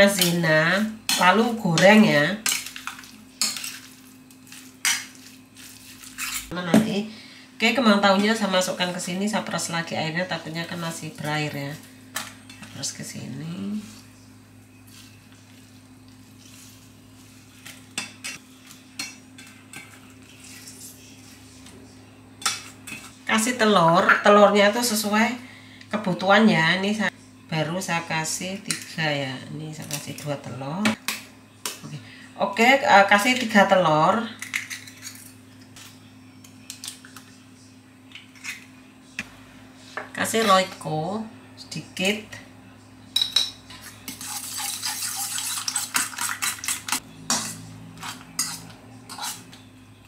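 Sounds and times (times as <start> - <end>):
eggs cracking over steel bowls: 1.0 - 6.5, 34.4 - 37.3, 43.2 - 49.3.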